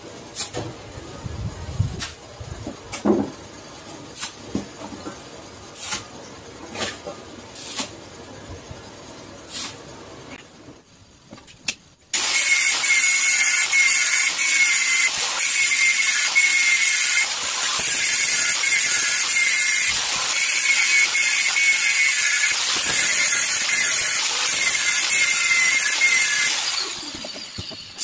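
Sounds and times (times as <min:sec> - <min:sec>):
angle grinder grinding metal: 0:12.2 - 0:28.0.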